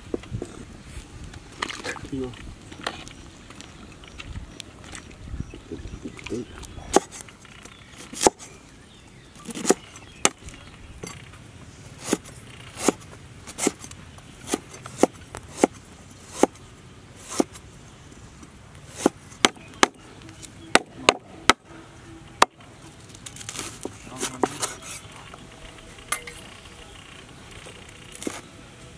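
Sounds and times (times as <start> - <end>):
cleaver chopping on wooden board: 6.9 - 7.2, 8.1 - 8.4, 9.5 - 10.4, 12.8 - 13.8, 14.4 - 16.6, 17.2 - 17.6, 18.9 - 20.0, 20.7 - 21.6.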